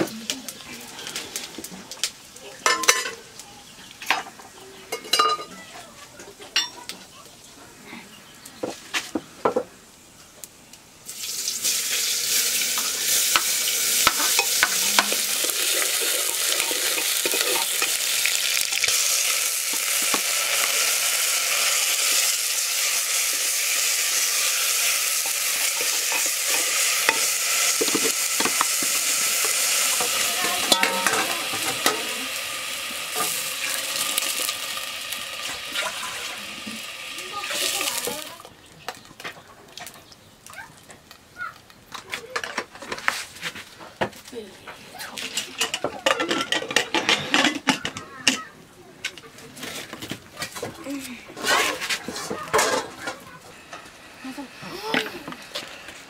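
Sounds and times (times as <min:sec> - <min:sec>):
greens sizzling in hot oil: 0:00.0 - 0:05.6, 0:09.8 - 0:39.2, 0:50.8 - 0:56.0
metal ladle scraping pot: 0:13.2 - 0:18.2, 0:25.1 - 0:32.2, 0:51.4 - 0:53.2.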